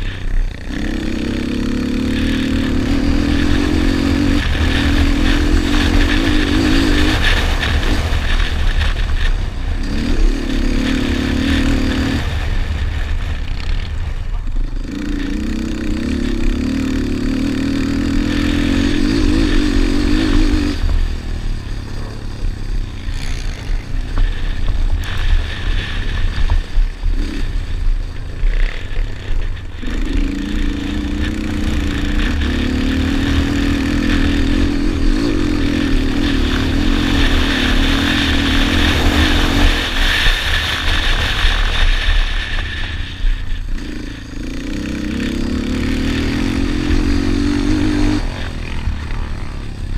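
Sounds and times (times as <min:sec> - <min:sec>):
quad engine revving: 0:00.0 - 0:49.9.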